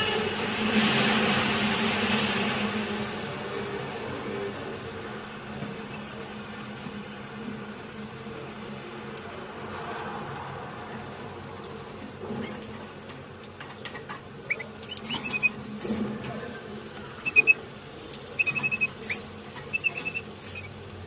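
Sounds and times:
nestlings peeping: 4.8s - 9.5s, 10.7s - 21.0s.

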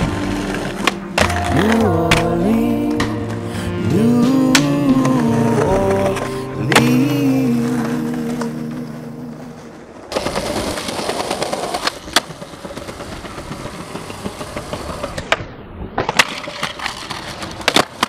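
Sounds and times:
skateboard sliding on concrete ledge: 0.0s - 1.5s, 7.5s - 18.0s
skateboard wheels rolling on concrete: 0.0s - 18.0s
skateboard popping and landing: 9.6s - 18.0s.

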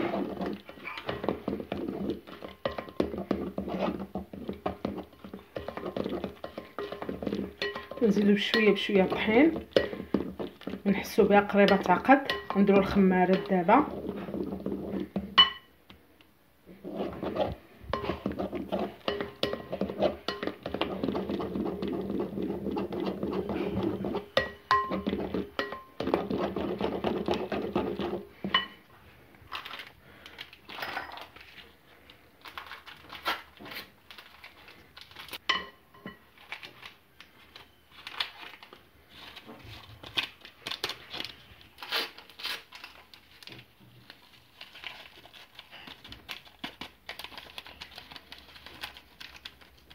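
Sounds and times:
wire whisk beating batter: 0.0s - 15.6s, 16.7s - 28.8s.

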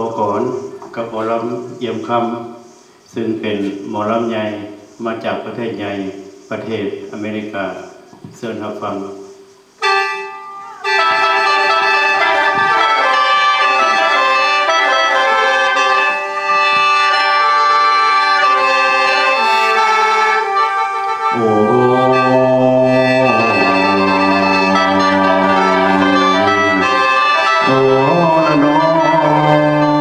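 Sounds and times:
bamboo mouth organ chords: 9.1s - 30.0s
drone note: 18.5s - 30.0s.

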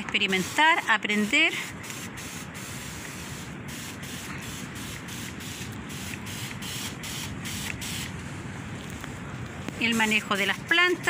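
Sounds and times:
hiss of liquid spraying: 0.2s - 8.1s.

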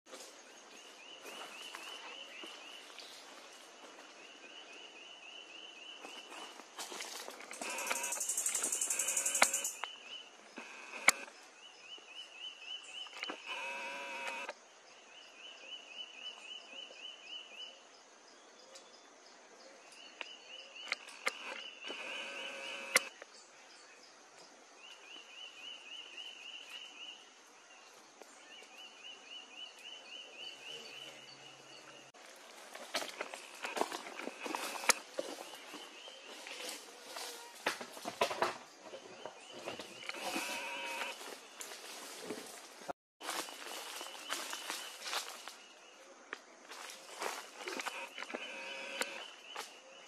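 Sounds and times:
sharp clicks: 7.6s - 9.9s, 10.6s - 11.3s, 20.8s - 23.2s, 33.6s - 35.0s, 47.6s - 49.3s
trill of rapid high ticks: 7.6s - 9.9s, 20.9s - 23.1s.

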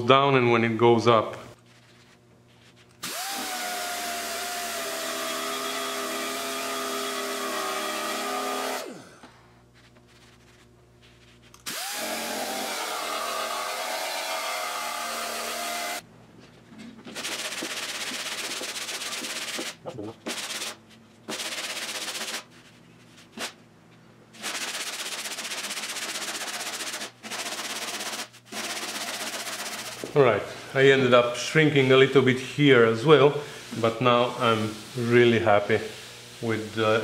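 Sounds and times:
air sander whining on metal: 3.0s - 9.3s, 11.6s - 16.0s.

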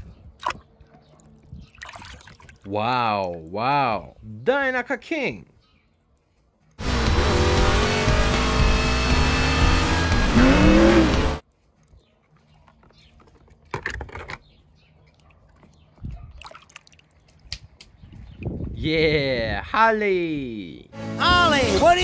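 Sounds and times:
race car engines whining: 6.8s - 11.4s.

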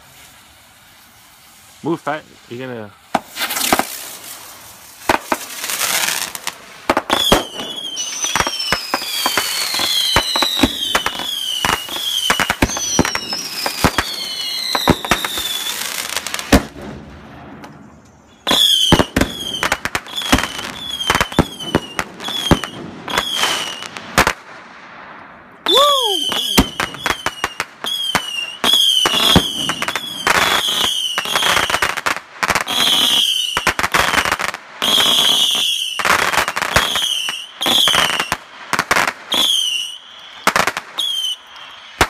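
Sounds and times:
fireworks bangs and pops: 0.0s - 42.0s
falling whistles: 7.1s - 16.2s, 18.3s - 23.9s, 25.6s - 31.8s, 34.8s - 38.4s, 39.3s - 42.0s.

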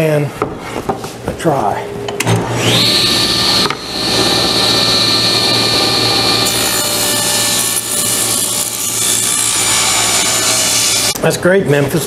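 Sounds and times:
table saw whining: 2.3s - 11.2s
saw cutting wooden board: 2.6s - 11.2s.

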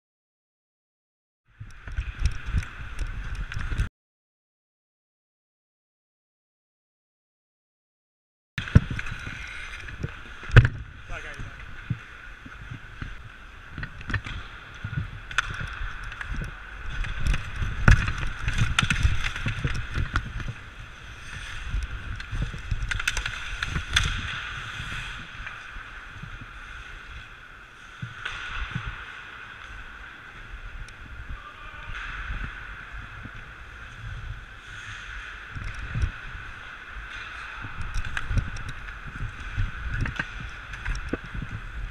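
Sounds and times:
skate blades scraping ice: 8.6s - 41.9s.

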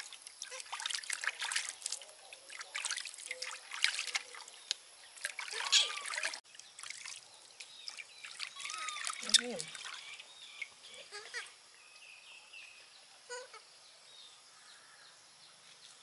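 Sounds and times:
water splashing in steel basin: 0.0s - 10.7s.

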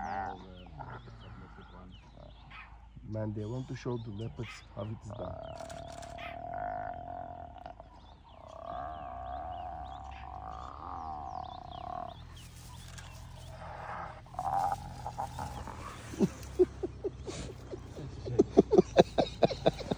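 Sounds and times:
faint bird chirps: 0.0s - 19.9s
hyena squealing: 4.4s - 18.7s.

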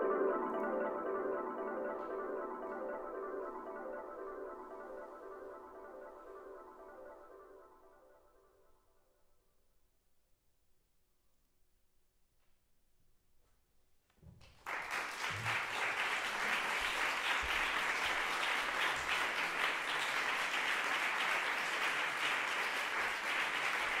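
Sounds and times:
audience applause: 14.6s - 24.0s.

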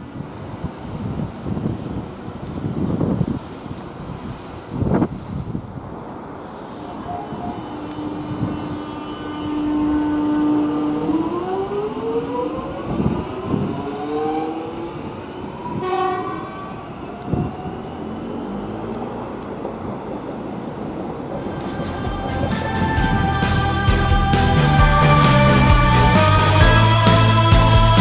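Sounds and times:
train horn: 6.8s - 14.6s, 15.7s - 16.9s
electric train motor whine: 7.1s - 15.0s.

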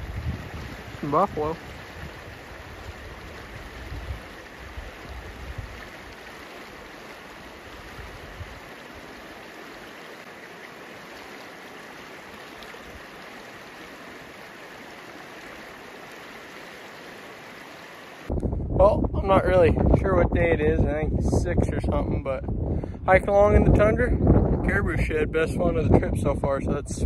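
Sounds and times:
wind rumble on microphone: 0.0s - 6.0s, 7.8s - 8.7s, 18.3s - 27.0s
river water rushing: 0.0s - 18.3s.

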